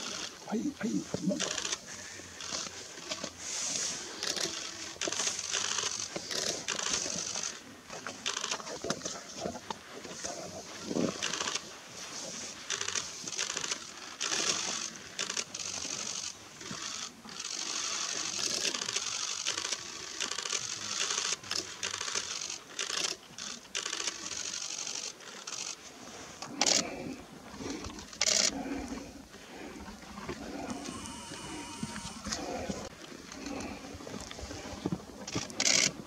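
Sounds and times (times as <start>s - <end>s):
small clicks: 4.2s - 9.1s, 12.7s - 25.8s.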